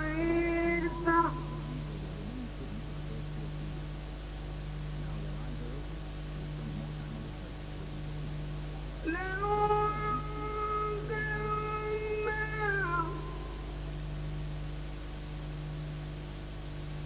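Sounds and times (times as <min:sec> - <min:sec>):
qawwali music: 0:00.0 - 0:01.8, 0:09.0 - 0:13.9
faint indistinct voices: 0:00.0 - 0:14.1
electrical mains hum: 0:00.0 - 0:17.0
recording hiss: 0:00.0 - 0:17.0.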